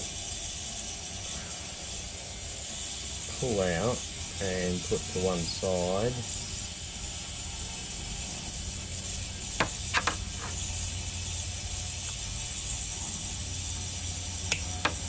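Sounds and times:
steady background hum: 0.0s - 15.0s.

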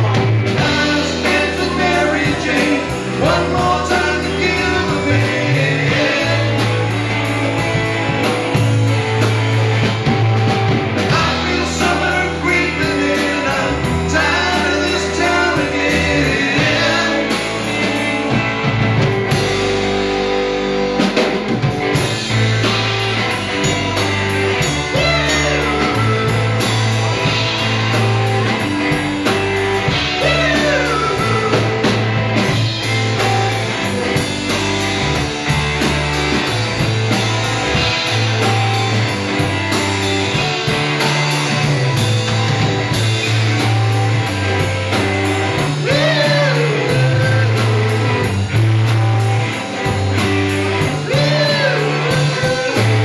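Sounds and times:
bass guitar: 0.0s - 53.0s
drum kit: 0.0s - 53.0s
electric guitars: 0.0s - 53.0s.

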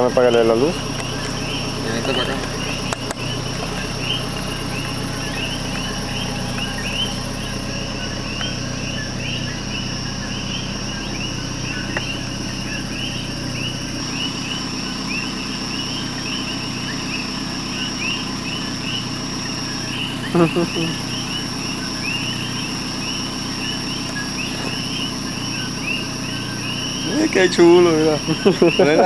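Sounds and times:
frogs chirping: 0.0s - 29.0s
high insect drone: 0.0s - 29.0s.

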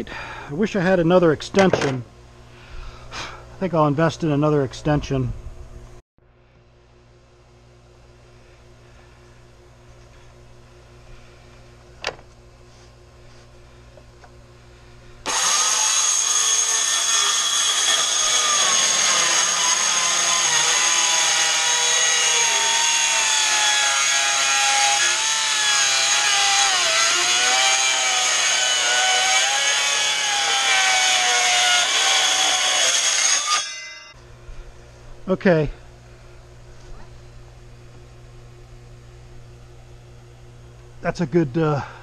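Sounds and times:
circular saw cutting wood: 15.2s - 34.2s.

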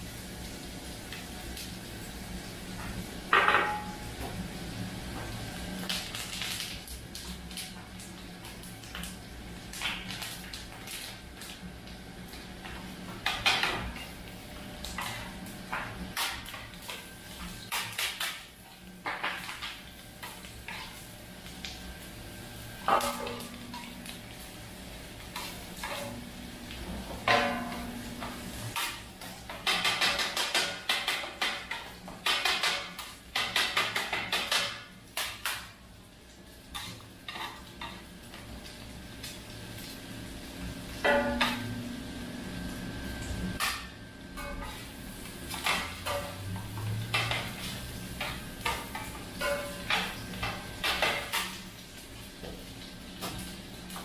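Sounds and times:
metal spatula clanking on griddle: 27.2s - 29.0s, 41.0s - 41.8s, 47.1s - 47.6s, 48.2s - 51.6s
metal blades clanging on griddle: 27.2s - 35.3s, 41.0s - 41.9s, 45.5s - 51.6s.

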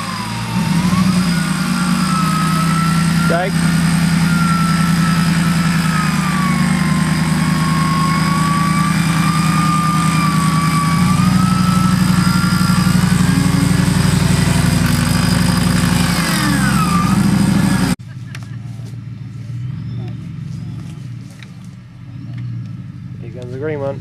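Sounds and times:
electric winch whining: 0.0s - 18.0s
truck engine running under load: 0.0s - 18.0s.

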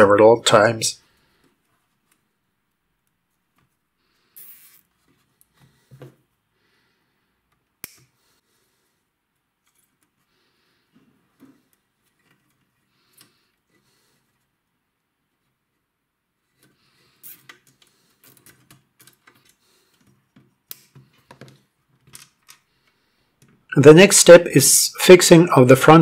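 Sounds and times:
cable ties clicking: 7.5s - 8.2s, 16.6s - 23.6s.

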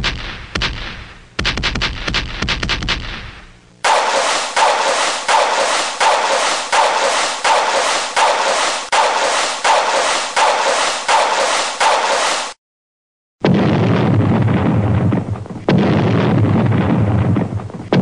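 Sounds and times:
rhythmic sharp noisy hits: 3.8s - 12.6s.

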